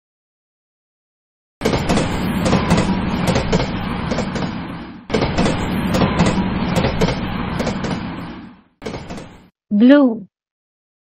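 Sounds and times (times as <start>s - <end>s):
cartoon train clattering: 1.6s - 9.5s.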